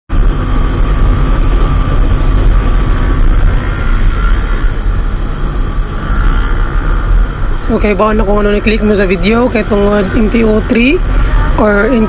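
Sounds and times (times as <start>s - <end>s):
wind rumble on microphone: 0.1s - 12.0s.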